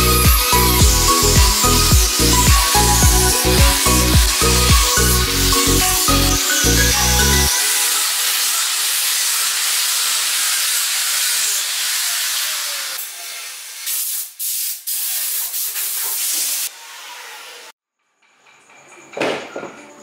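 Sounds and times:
power sander on wood: 0:00.0 - 0:14.0, 0:15.9 - 0:17.7.

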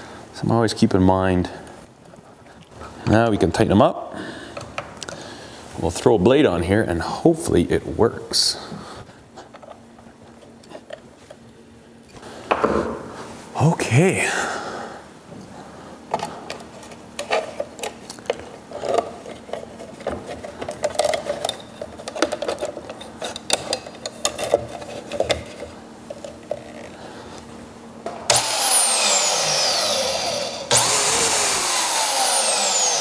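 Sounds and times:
bandsaw running with whine: 0:28.3 - 0:33.0.

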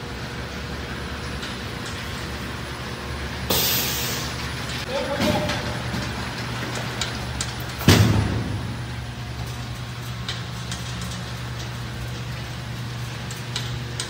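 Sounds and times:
loud clunk: 0:07.8 - 0:08.9.

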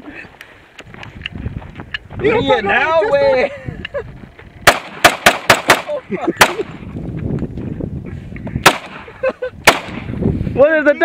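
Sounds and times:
wind rumbling on microphone: 0:00.0 - 0:11.0
gunshots: 0:04.6 - 0:06.8, 0:08.6 - 0:10.1.

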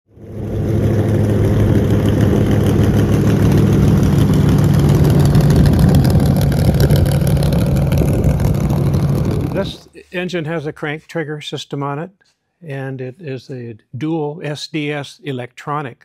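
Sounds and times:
propeller aircraft engine running: 0:00.1 - 0:09.9.

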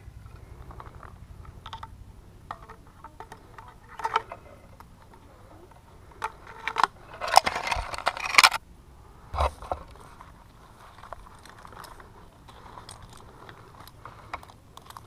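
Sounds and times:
climbing hardware clinking: 0:00.0 - 0:08.6, 0:09.4 - 0:15.0
hardware scraping against bark: 0:00.0 - 0:08.6, 0:09.2 - 0:15.0.

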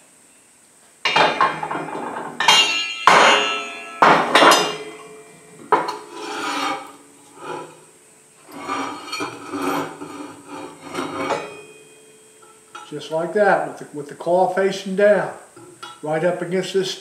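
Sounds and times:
steel clanking on metal bench: 0:01.1 - 0:07.9, 0:08.5 - 0:13.1
metal scraping and sliding: 0:01.1 - 0:13.3.

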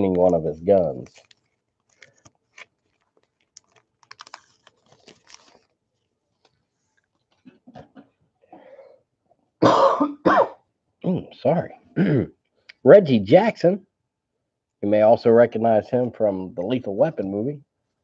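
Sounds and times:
paper wrapper crinkling and tearing: 0:00.0 - 0:07.4
man coughing: 0:09.6 - 0:11.2, 0:12.0 - 0:12.4.

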